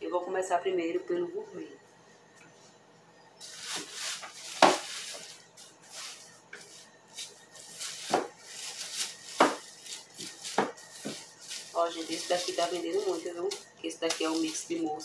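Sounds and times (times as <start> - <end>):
plastic rustling: 3.4 - 15.0.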